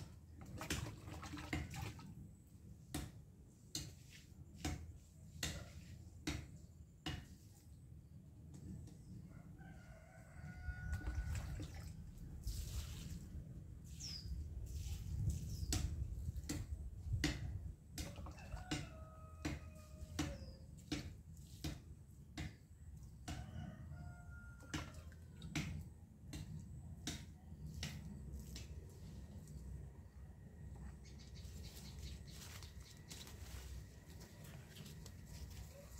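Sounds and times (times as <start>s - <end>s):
rooster crowing: 9.4s - 11.3s, 18.1s - 20.2s, 23.3s - 25.1s.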